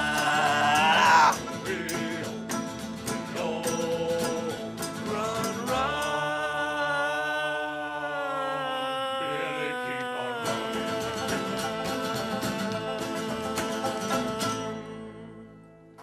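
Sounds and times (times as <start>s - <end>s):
plucked banjo guitars and bass: 0.0s - 7.5s, 8.3s - 16.0s
male voices singing in harmony: 0.0s - 16.0s.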